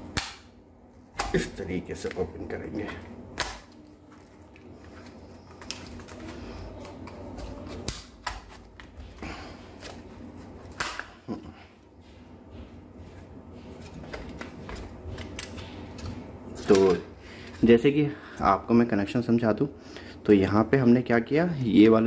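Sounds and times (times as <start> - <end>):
plastic cover snapping: 3.4 - 9.0.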